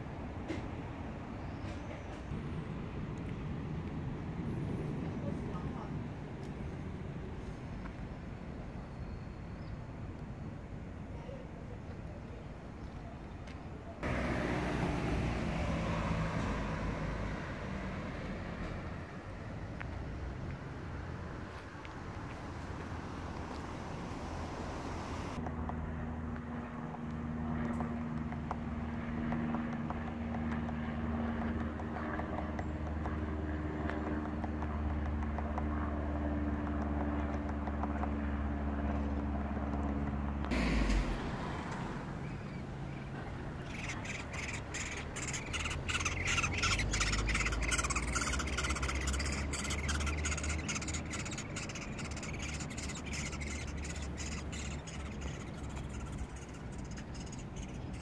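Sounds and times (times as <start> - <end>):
nestling birds begging: 14.0 - 25.4, 27.6 - 58.0
steady low hum: 18.7 - 58.0.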